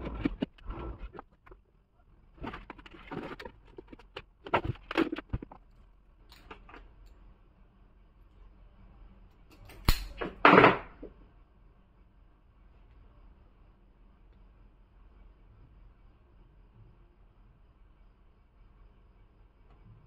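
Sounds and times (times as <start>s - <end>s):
handling cable and parts: 0.0s - 1.6s, 2.3s - 6.9s
sharp click: 9.6s - 10.2s.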